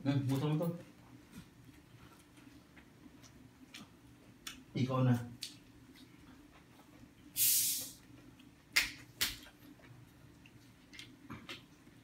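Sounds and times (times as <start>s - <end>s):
short hiss: 7.4s - 8.0s.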